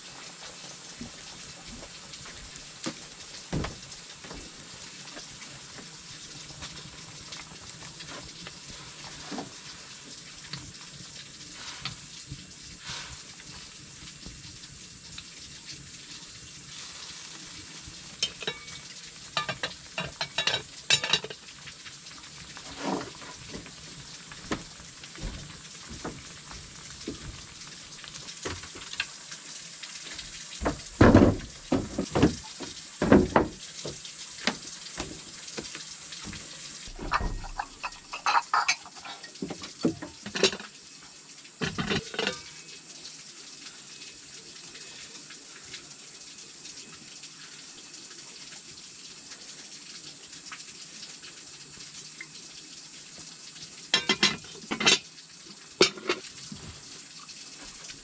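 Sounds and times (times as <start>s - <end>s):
food sizzling: 0.0s - 58.0s
utensil clattering on cookware: 18.2s - 21.4s, 37.0s - 40.7s, 41.6s - 42.6s, 53.9s - 55.0s, 55.8s - 56.3s.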